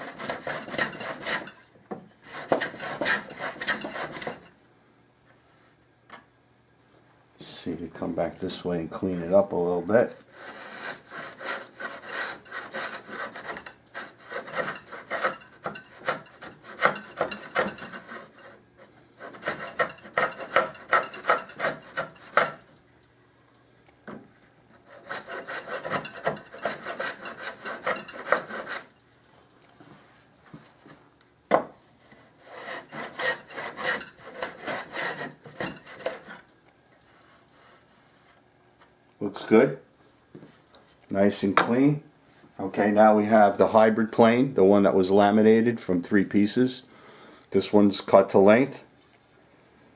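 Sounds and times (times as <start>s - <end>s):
hand plane rasping on wood: 0.0s - 1.6s, 2.2s - 4.4s, 10.3s - 18.6s, 19.2s - 22.6s, 24.8s - 28.9s, 32.1s - 36.4s.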